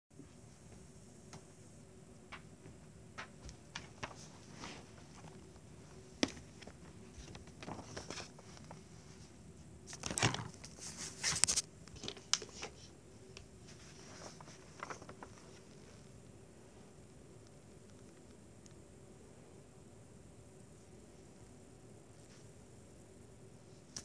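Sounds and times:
paper rustling and crinkling: 3.2 - 16.1.

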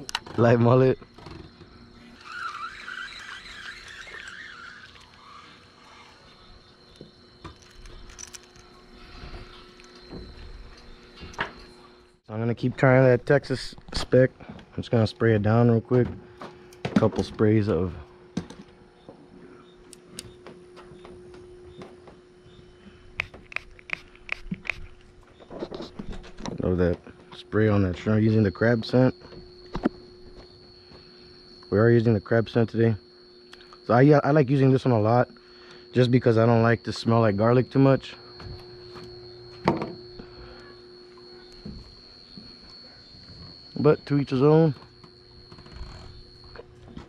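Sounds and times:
fishing reel gears whirring: 0.0 - 12.2, 35.1 - 47.0
steady low hum: 0.0 - 47.0.

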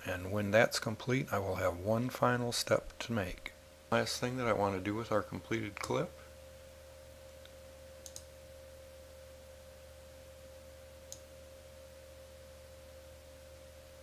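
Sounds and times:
faint mouse clicks: 7.4 - 8.3, 11.1 - 11.3.

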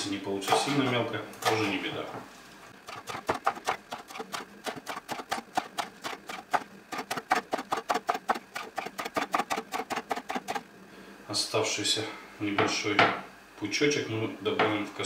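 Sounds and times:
knife chopping on wooden board: 2.9 - 10.6.

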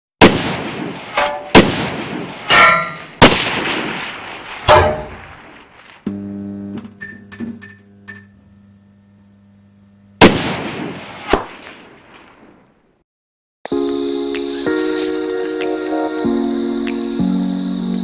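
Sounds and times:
sharp gunshots: 0.2 - 6.1, 10.2 - 12.6.

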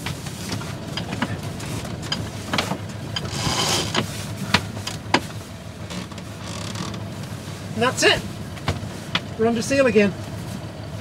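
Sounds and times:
winch and deck gear clicks: 0.9 - 5.2.

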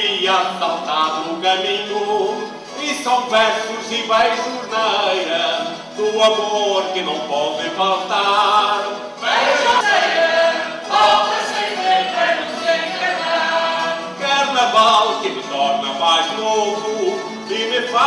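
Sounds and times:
choir singing in chorus: 7.7 - 15.9.

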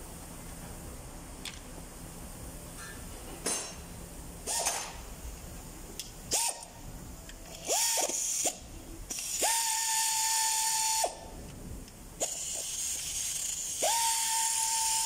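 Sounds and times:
pneumatic wrench whining: 4.4 - 5.0, 6.3 - 6.7, 7.5 - 11.2, 12.2 - 15.0.

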